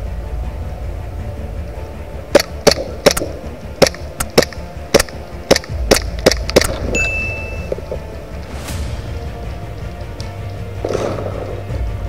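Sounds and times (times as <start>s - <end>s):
airsoft pistol shots: 2.4s - 6.9s.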